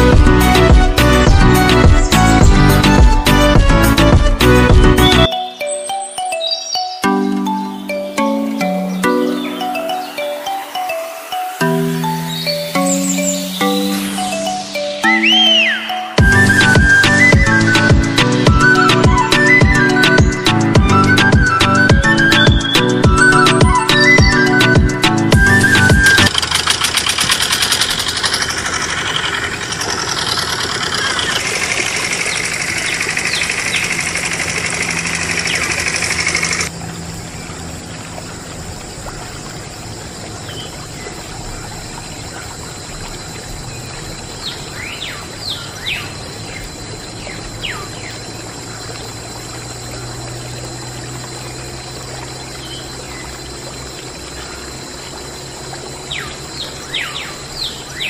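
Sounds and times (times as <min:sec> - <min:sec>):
bird chirps: 0:05.0 - 0:17.6, 0:25.4 - 0:36.7, 0:44.4 - 0:49.0, 0:56.1 - 0:58.0
loud steady noise: 0:25.9 - 0:36.8
water trickling into puddle: 0:26.0 - 0:58.0.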